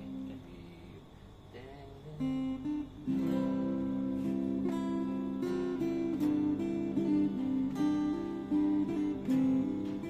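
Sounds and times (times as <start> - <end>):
plucked guitar and lute notes: 2.2 - 10.0.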